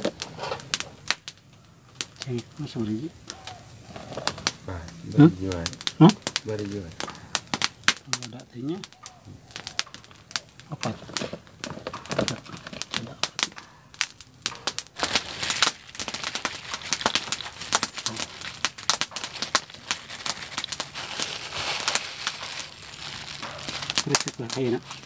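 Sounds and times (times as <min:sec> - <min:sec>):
plastic bag crinkling: 0:05.2 - 0:25.0.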